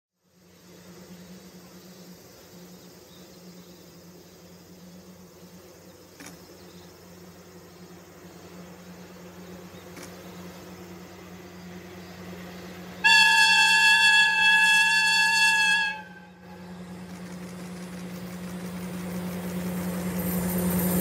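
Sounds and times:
insects buzzing and chirping: 0.2s - 21.0s
low steady hum: 0.2s - 21.0s
faint clicks: 9.9s - 10.2s.

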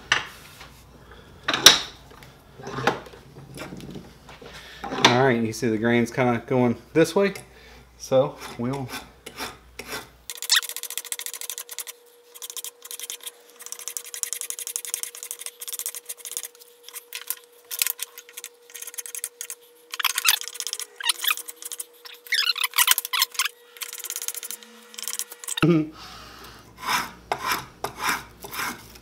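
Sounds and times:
spokeshave scraping wood: 8.3s - 25.6s, 26.7s - 29.0s
squeaky tool chatter: 10.3s - 25.6s.

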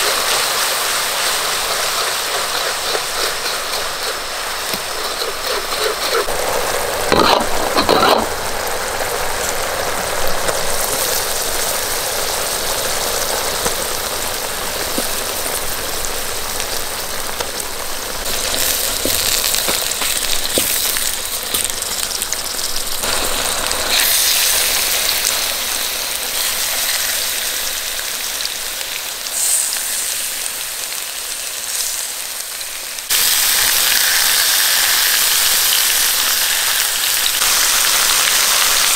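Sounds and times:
metal ladle scraping a wok: 0.0s - 6.4s, 7.0s - 8.4s
sauce sizzling in a wok: 0.0s - 38.9s.

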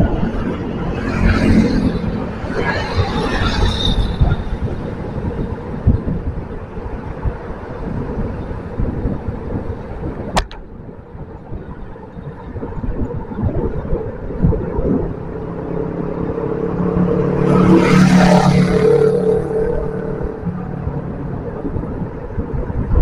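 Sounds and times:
motor scooters in traffic: 0.0s - 23.0s
wind rumble on microphone: 0.0s - 23.0s
sharp click: 10.4s - 10.7s.

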